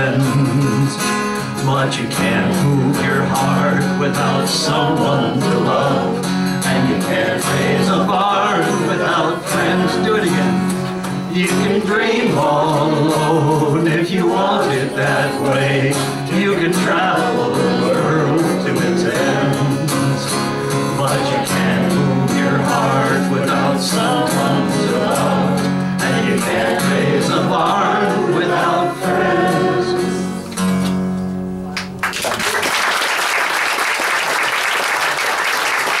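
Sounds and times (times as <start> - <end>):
voices singing together: 0.0 - 1.0, 1.6 - 30.6
acoustic guitar strummed: 0.0 - 32.0
audience applause: 31.8 - 36.0.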